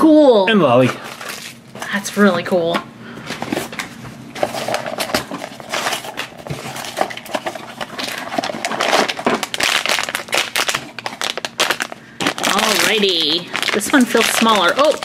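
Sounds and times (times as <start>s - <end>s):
foil bag crinkling: 0.8s - 2.0s, 3.4s - 15.0s.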